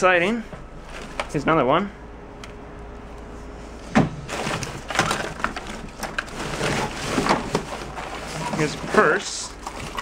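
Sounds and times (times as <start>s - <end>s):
papers and cards rustling: 4.3s - 9.2s.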